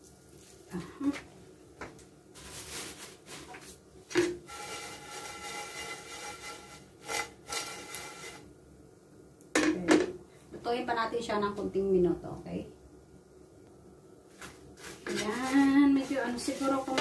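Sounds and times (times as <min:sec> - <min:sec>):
dried fish rattling in a pan: 0:02.4 - 0:08.5, 0:14.8 - 0:17.0
spatula scraping a pan: 0:02.4 - 0:08.5, 0:14.4 - 0:17.0.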